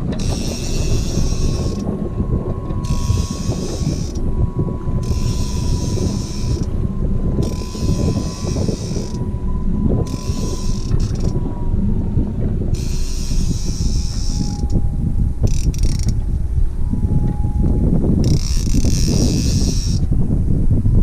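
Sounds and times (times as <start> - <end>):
fishing reel whirring: 0.0 - 16.2, 18.1 - 20.1
wind rumble on microphone: 0.0 - 21.0.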